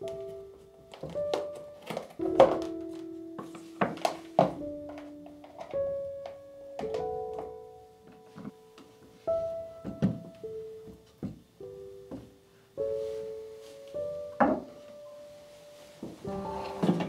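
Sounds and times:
slow piano music: 0:00.0 - 0:17.0
objects knocking and clunking: 0:00.9 - 0:08.6, 0:09.8 - 0:11.5, 0:14.4 - 0:14.8.

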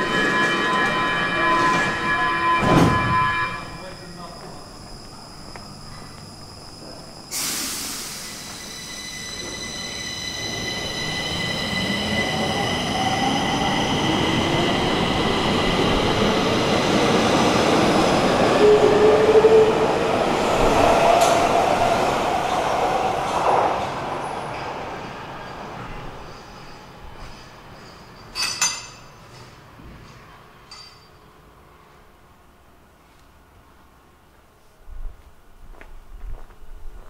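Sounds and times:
high squeal of steady tones: 0:00.0 - 0:21.8, 0:25.0 - 0:28.4.

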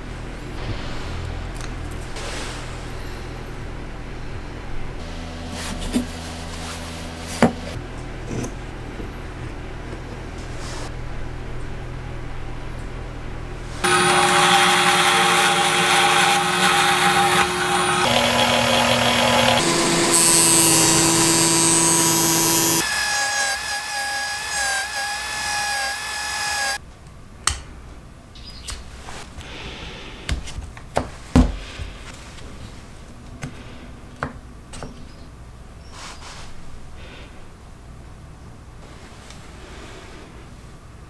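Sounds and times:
bench power tool whine: 0:13.8 - 0:26.8.

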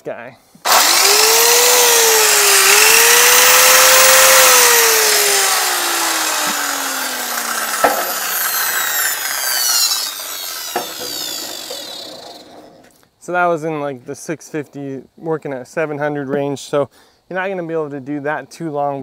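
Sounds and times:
circular saw motor whine: 0:00.7 - 0:12.6.

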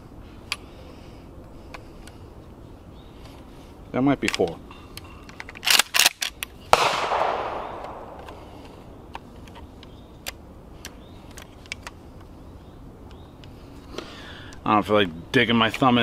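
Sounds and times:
gunshot echoing: 0:06.7 - 0:08.6.

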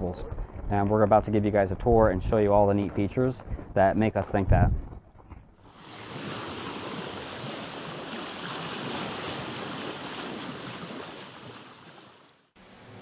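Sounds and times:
ocean waves and surf: 0:05.6 - 0:13.0.

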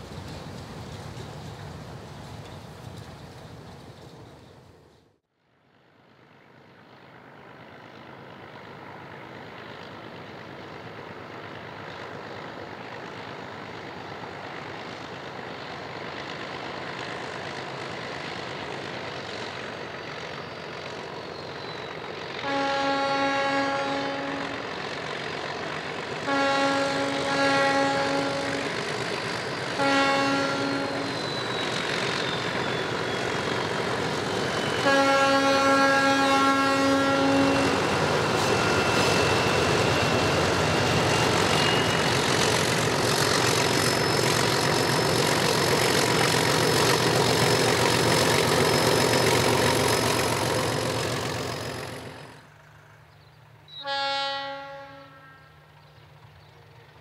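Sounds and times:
running noise of passing train: 0:00.0 - 0:57.0
locomotive horn blasts: 0:22.4 - 0:24.7, 0:26.2 - 0:28.8, 0:29.7 - 0:31.4, 0:34.8 - 0:38.0, 0:53.8 - 0:55.6.

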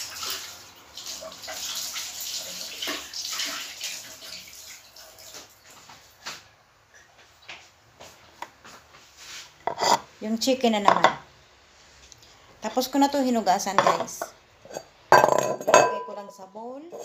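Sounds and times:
water running from tap: 0:00.0 - 0:05.9
bowls knocking: 0:13.8 - 0:17.0.

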